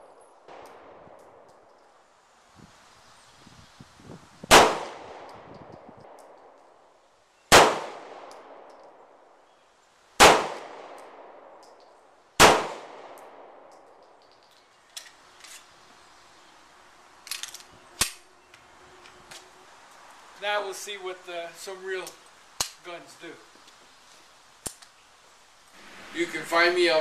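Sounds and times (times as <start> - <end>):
pistol handling clicks: 0.5 - 1.9, 5.2 - 6.7, 8.1 - 9.0, 10.2 - 15.7, 17.2 - 19.5, 22.0 - 22.8, 24.6 - 25.0
pistol shots with echo: 4.5 - 5.4, 7.5 - 8.8, 10.2 - 11.7, 12.4 - 13.9.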